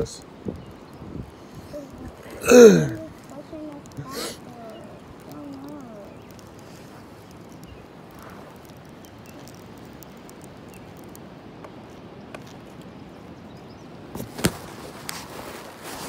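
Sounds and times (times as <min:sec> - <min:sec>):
wind noise on microphone: 0:00.0 - 0:11.9.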